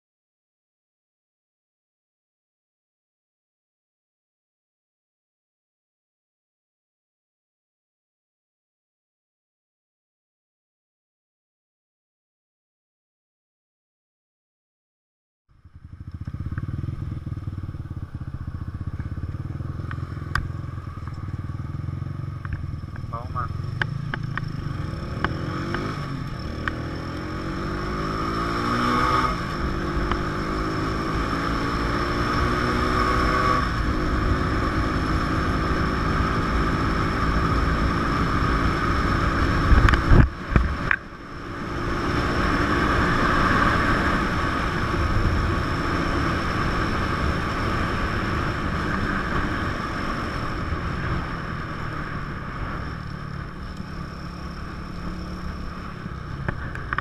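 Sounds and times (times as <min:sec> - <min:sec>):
motorcycle engine accelerating: 0:15.5 - 0:57.0
wind rushing over microphone: 0:23.9 - 0:53.6.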